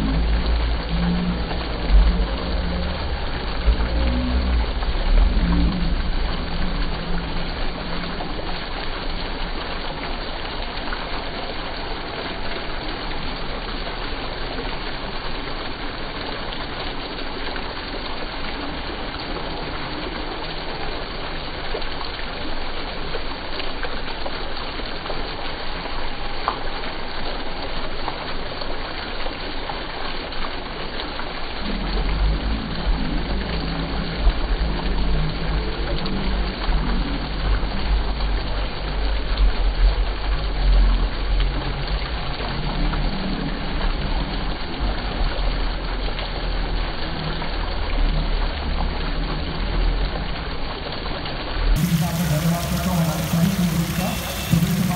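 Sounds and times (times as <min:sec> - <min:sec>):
fountain splashing into pool: 0:00.0 - 0:54.9.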